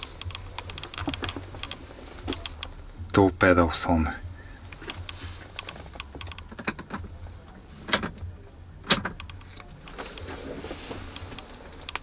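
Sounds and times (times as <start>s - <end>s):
low steady hum: 0.0s - 12.0s
dashboard switch clicks: 8.9s - 10.2s.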